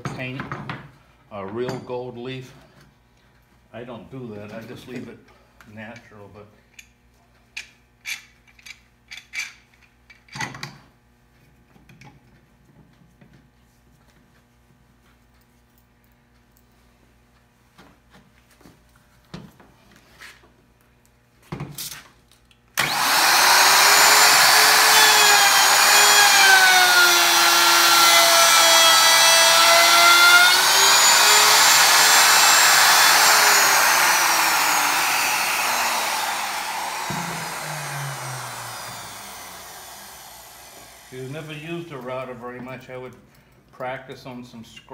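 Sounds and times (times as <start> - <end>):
router whining: 22.8 - 41.9.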